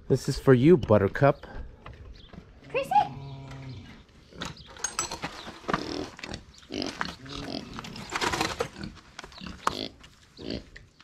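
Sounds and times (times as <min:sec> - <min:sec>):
pig grunting: 0:05.7 - 0:10.8.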